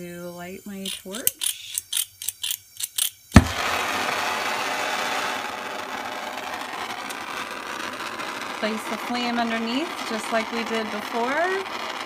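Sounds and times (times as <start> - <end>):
gas flame hissing: 0.0 - 12.0
gas torch igniter clicks: 0.9 - 3.6
gas igniting with a pop: 3.3 - 12.0.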